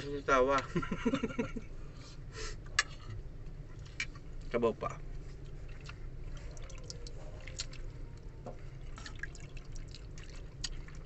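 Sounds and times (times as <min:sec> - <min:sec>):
low steady hum: 0:00.0 - 0:11.0
wet chewing and lip smacks: 0:05.3 - 0:11.0.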